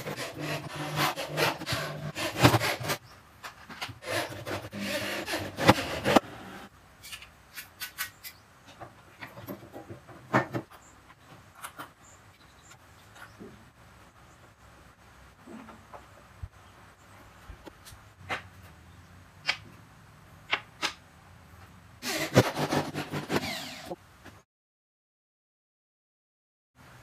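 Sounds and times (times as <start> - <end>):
electric drill driving screws: 22.0 - 24.0.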